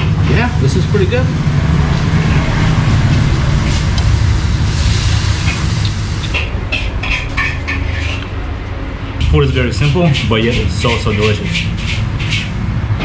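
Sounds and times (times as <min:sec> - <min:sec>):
low steady rumble: 0:00.0 - 0:13.0
spatula scraping in wok: 0:04.8 - 0:08.4.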